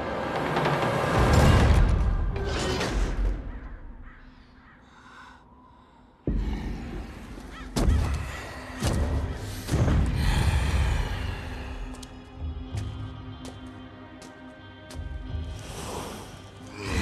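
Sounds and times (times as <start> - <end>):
crows cawing: 3.3 - 6.1, 6.9 - 8.9.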